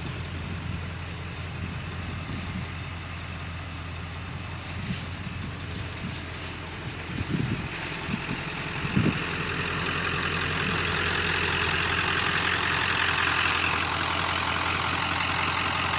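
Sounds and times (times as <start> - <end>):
truck engine idling: 0.0 - 15.9
wind gusts on microphone: 4.6 - 9.5.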